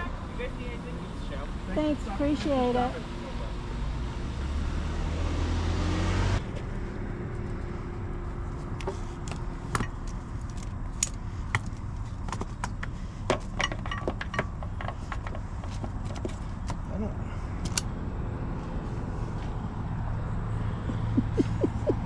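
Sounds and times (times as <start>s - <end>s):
strap buckle clicking and jingling: 12.8s - 16.4s.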